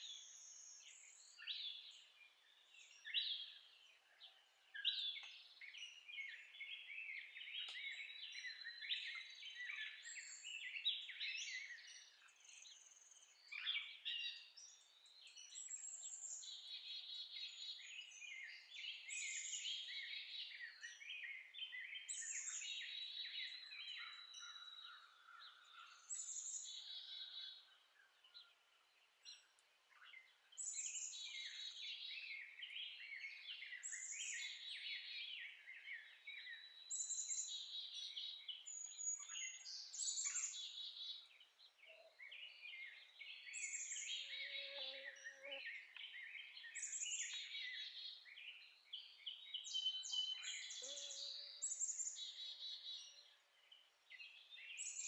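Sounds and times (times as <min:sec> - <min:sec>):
songbirds singing: 0:00.0 - 0:55.0.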